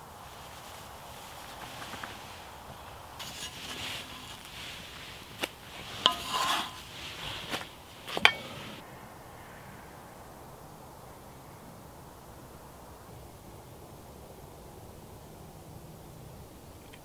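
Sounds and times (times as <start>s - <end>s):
pancakes sizzling: 0.0s - 8.8s
faint outdoor hiss: 0.0s - 17.0s
spatula scraping skillet: 1.3s - 8.8s.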